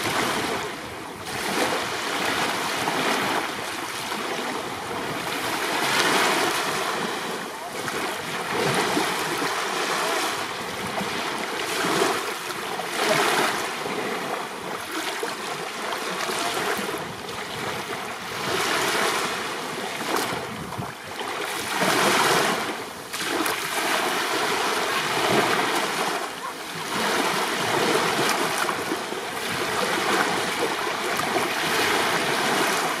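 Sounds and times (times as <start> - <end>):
small waves breaking on shore: 0.0 - 33.0.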